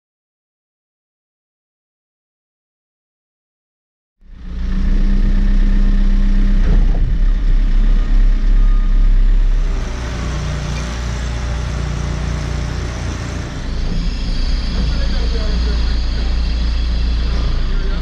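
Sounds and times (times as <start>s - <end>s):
diesel engine running: 4.2s - 18.0s.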